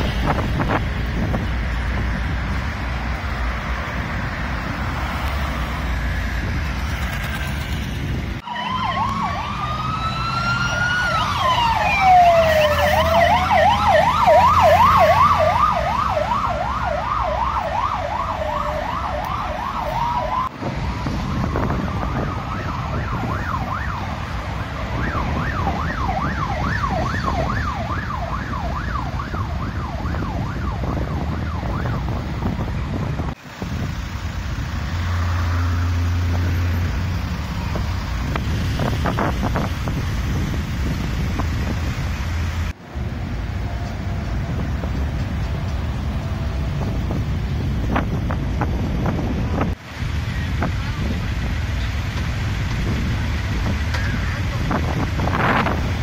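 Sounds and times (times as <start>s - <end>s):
road traffic: 0.0s - 56.0s
wind rumble: 0.0s - 56.0s
emergency siren wailing and yelping: 8.4s - 33.0s.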